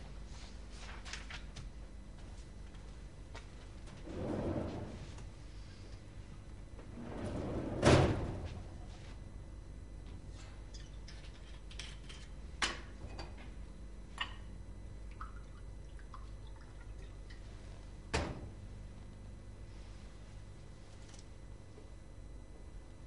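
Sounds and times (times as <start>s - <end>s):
liquid pouring into glass: 15.2s - 17.4s.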